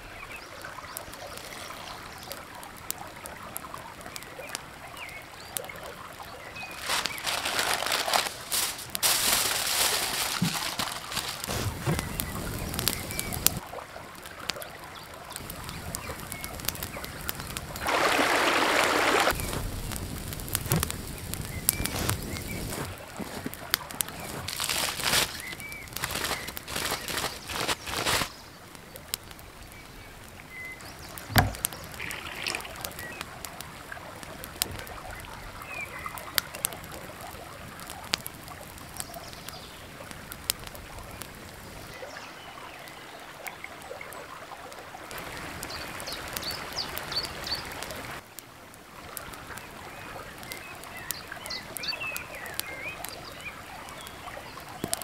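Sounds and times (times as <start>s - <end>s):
campfire crackling and popping: 0.0s - 55.0s
creek flowing: 0.0s - 55.0s
birds chirping: 4.2s - 13.6s, 15.3s - 19.7s, 20.6s - 33.5s.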